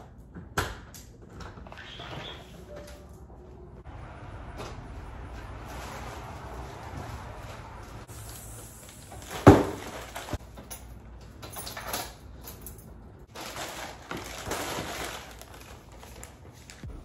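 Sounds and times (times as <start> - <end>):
handling noises: 4.4 - 17.0
plastic mailer bag rustling: 5.0 - 10.7, 13.3 - 17.0.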